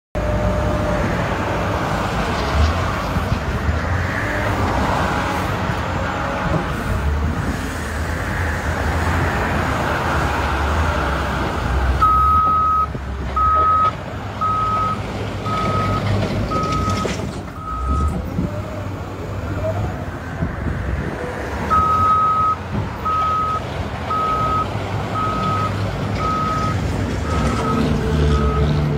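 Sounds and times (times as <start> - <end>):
reverse alarm beeping: 12.0 - 18.1, 21.7 - 27.8.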